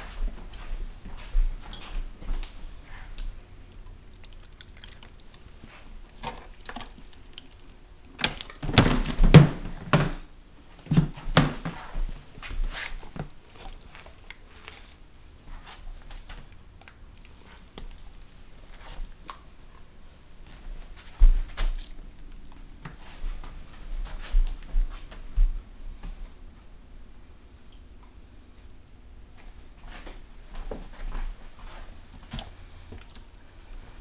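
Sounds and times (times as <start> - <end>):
fish thudding in plastic cooler: 8.2 - 10.2.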